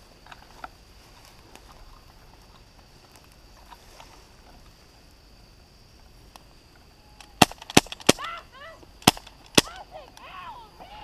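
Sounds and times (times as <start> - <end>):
airsoft gun shots: 7.4 - 8.3, 9.0 - 9.7
person shouting: 8.2 - 8.8, 9.6 - 11.0.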